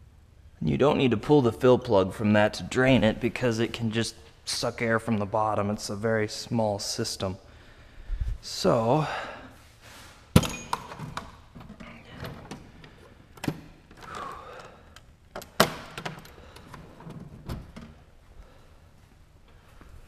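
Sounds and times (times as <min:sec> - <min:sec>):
tools clinking and rattling: 0:10.4 - 0:12.6.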